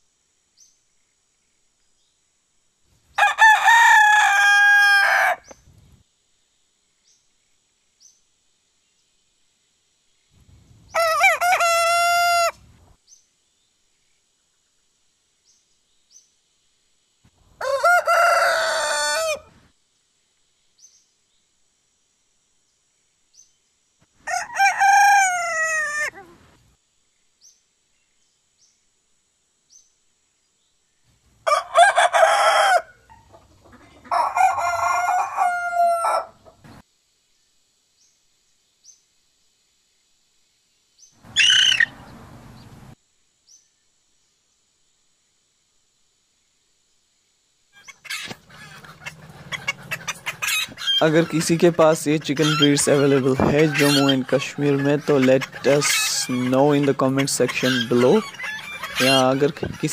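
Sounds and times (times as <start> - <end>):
roosters crowing: 3.1 - 5.6, 10.9 - 12.6, 17.4 - 19.6, 24.1 - 26.4, 31.4 - 36.8, 41.2 - 43.0, 47.8 - 59.9.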